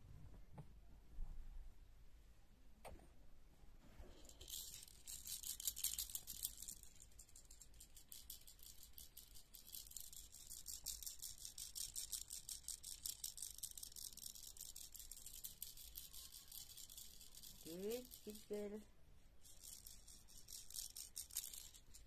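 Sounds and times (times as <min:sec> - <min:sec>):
baby rattle shaken quickly: 0:04.1 - 0:18.8, 0:19.4 - 0:22.0.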